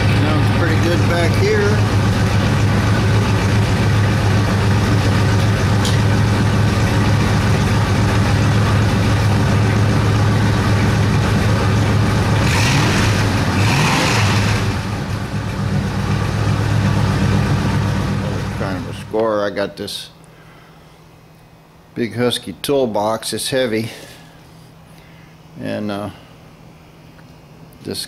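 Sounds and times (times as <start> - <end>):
car engine idling: 0.0 - 19.4.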